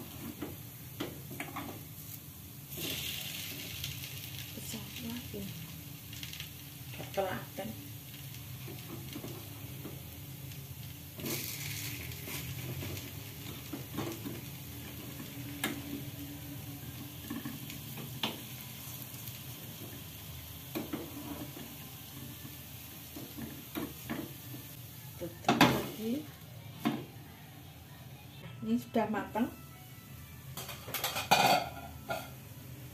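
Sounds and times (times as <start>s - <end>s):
cakes sizzling in a pan: 0.0s - 28.2s, 30.5s - 32.9s.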